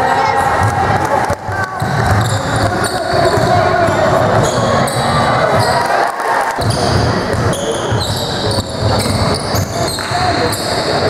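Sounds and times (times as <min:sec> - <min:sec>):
basketball bouncing on wooden floor: 0:00.6 - 0:05.8
shoes squeaking on court: 0:01.8 - 0:05.9, 0:06.6 - 0:11.0.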